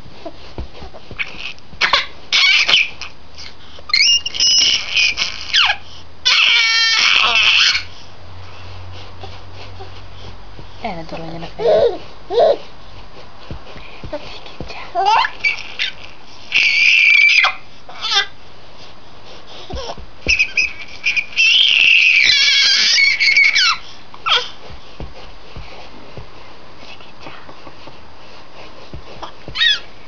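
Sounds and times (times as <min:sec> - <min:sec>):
infant squeaks: 0:00.2 - 0:07.9, 0:11.5 - 0:12.7, 0:15.0 - 0:18.4, 0:19.6 - 0:24.6, 0:29.2 - 0:30.0
infant squealing: 0:00.9 - 0:07.9, 0:11.6 - 0:12.6, 0:15.0 - 0:18.4, 0:19.6 - 0:24.6, 0:29.2 - 0:29.9.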